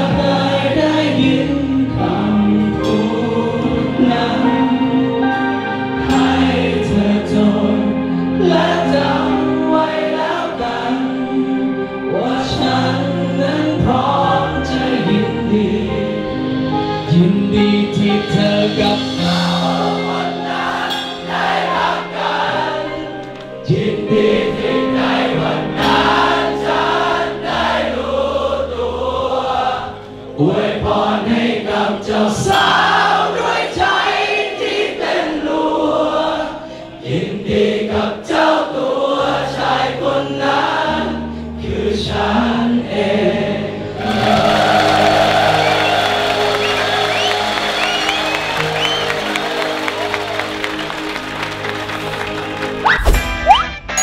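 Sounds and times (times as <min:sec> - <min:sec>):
many voices singing: 0:00.0 - 0:52.7
live band playing pop song: 0:10.7 - 0:26.8
crowd cheering and applauding: 0:44.0 - 0:53.8.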